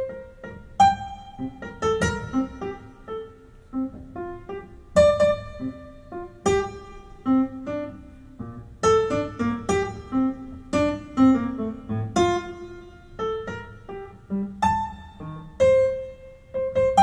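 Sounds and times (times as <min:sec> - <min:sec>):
jazz piano ballad: 0:00.0 - 0:17.0.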